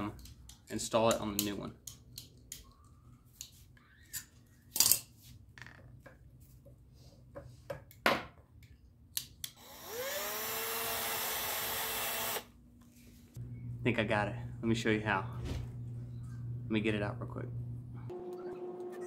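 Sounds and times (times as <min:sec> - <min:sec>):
cordless drill whining: 0:09.6 - 0:12.5.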